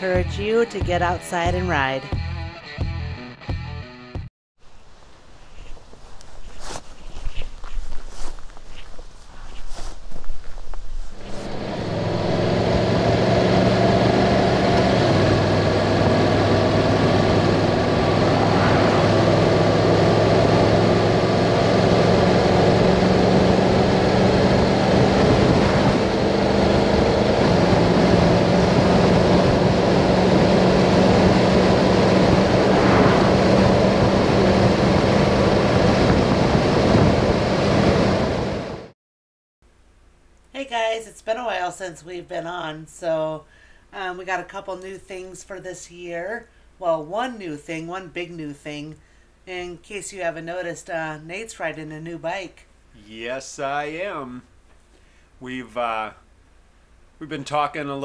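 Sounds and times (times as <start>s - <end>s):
wind and road noise: 4.6s - 38.9s
motorcycle engine drone: 10.8s - 38.9s.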